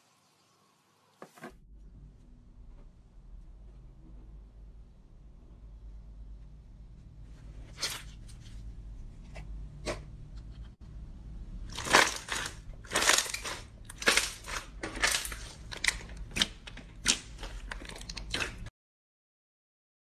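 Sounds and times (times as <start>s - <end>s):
slime squishing: 11.6s - 18.7s
hands squeezing slime: 11.7s - 18.7s.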